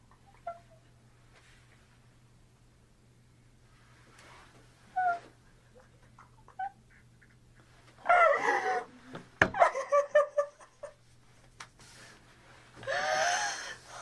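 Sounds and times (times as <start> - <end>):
faint steady hum: 0.0 - 14.0
woman sobbing: 8.0 - 9.0.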